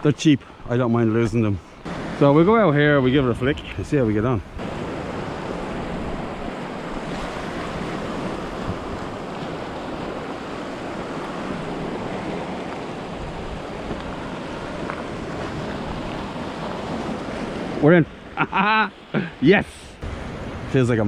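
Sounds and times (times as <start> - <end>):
surf washing over rocks: 1.0 - 21.0
wind on microphone: 3.1 - 17.9.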